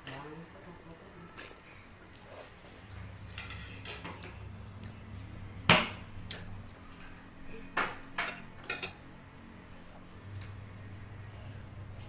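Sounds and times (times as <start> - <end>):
low steady hum: 0.0 - 12.0
cutlery clinking on dishes: 3.0 - 4.4, 7.7 - 9.0.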